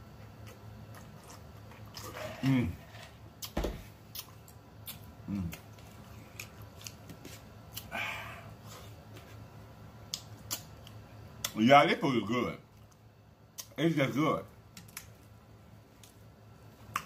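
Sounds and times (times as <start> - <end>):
man chewing with wet smacks: 0.0 - 2.2, 3.4 - 7.9, 10.0 - 11.6, 12.7 - 13.8, 14.7 - 17.0.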